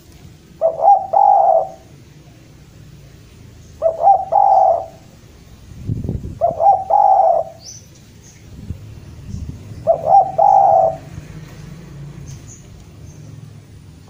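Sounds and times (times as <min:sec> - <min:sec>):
dove cooing: 0:00.0 - 0:02.0, 0:03.6 - 0:05.2, 0:06.4 - 0:07.8, 0:09.8 - 0:11.2.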